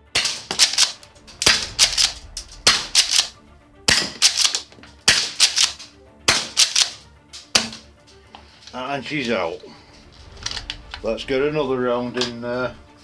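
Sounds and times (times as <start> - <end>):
shotgun pump clacks: 0.4 - 2.2, 2.8 - 3.3, 4.1 - 7.8.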